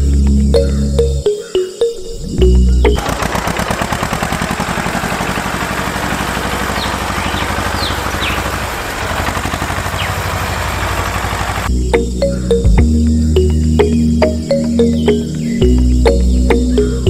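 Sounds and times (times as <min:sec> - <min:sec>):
tractor engine chugging: 0:02.8 - 0:11.7.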